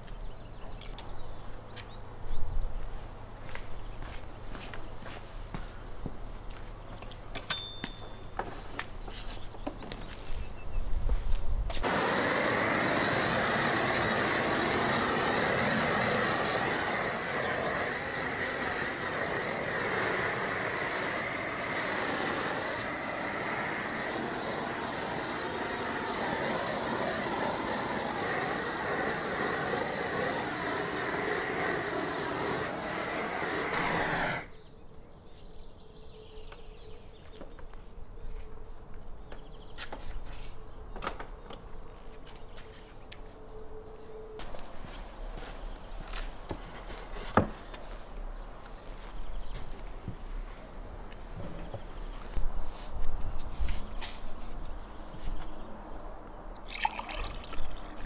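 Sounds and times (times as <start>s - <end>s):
gas torch hissing: 11.7s - 34.6s.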